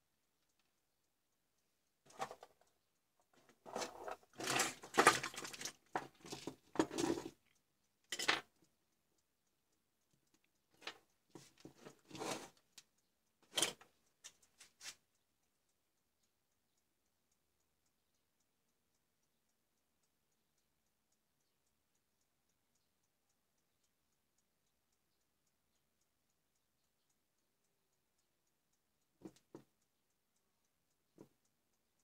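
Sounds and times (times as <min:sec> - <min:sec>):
cables clattering on workbench: 0:08.1 - 0:08.4.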